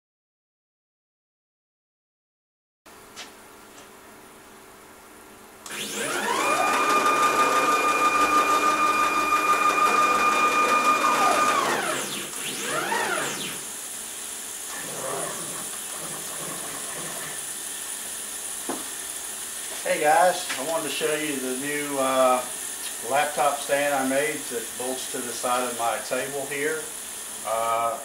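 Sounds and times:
stepper motor whine: 5.6s - 17.9s.

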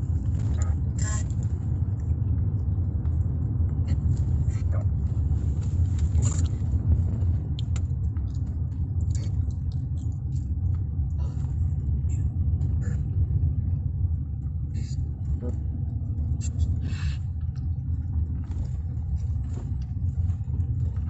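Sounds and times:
faint clicks and crackles: 0.0s - 12.9s
car engine and road noise: 0.0s - 21.0s.

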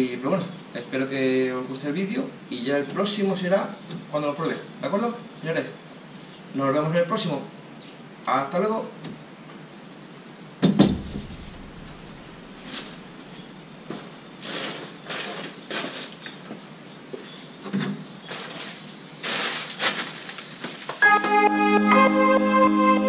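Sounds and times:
sharp knock: 10.6s - 13.5s
plastic wrapping rustling: 10.9s - 16.6s, 17.7s - 21.0s.

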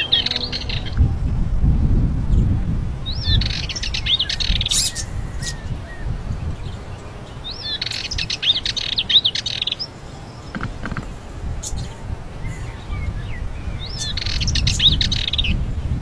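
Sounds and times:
warbler singing scratchy chatter: 0.0s - 1.7s, 2.3s - 16.0s.

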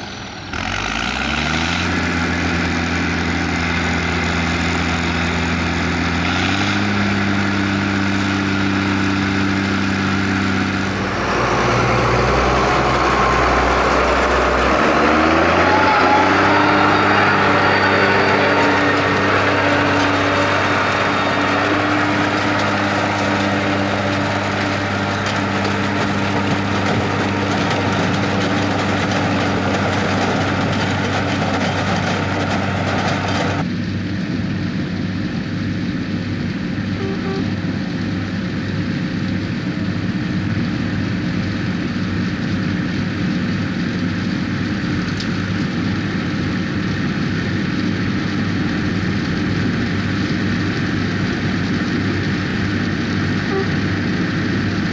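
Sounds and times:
tractor engines under load: 0.0s - 54.9s
harvesting machinery rattling: 1.9s - 33.7s.

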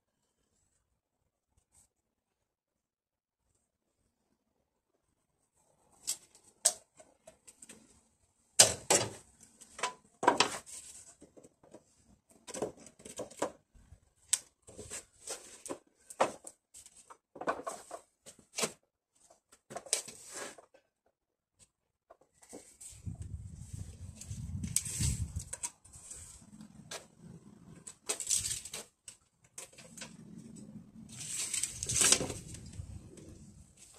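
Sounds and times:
wood scraping and rustling: 9.0s - 13.6s, 14.6s - 20.8s, 22.2s - 33.9s.

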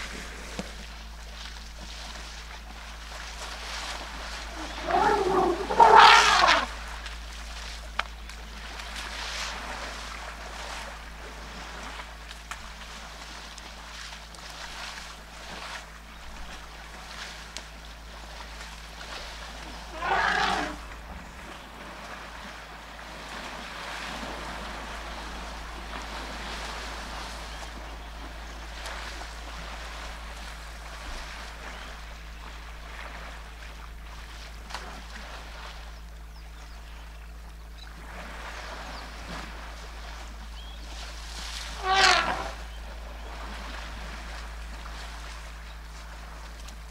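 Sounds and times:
water sloshing and splashing: 0.0s - 46.9s
elephant trumpeting: 4.3s - 6.8s, 19.8s - 20.9s, 41.7s - 42.7s.

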